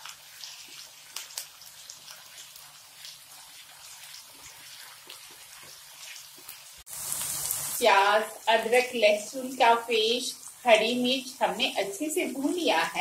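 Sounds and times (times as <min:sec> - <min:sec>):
onion sizzling in hot oil: 0:00.0 - 0:13.0.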